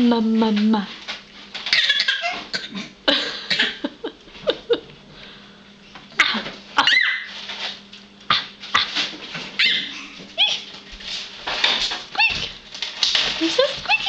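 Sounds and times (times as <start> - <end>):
baby squealing: 1.7 - 2.4.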